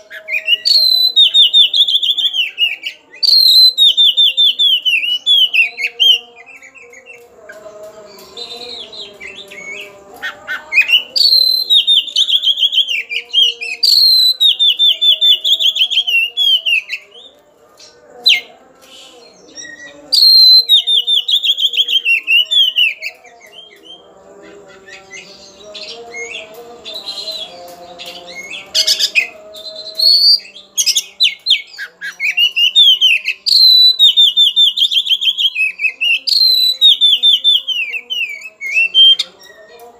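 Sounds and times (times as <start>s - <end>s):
bird singing whistled phrases: 0.0s - 6.2s, 10.8s - 17.2s, 18.3s - 24.0s, 28.0s - 39.8s.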